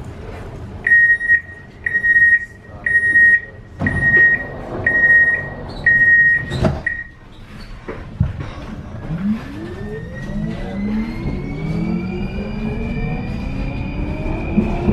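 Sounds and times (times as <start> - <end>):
high electronic warning beeps: 0.9 - 7.2.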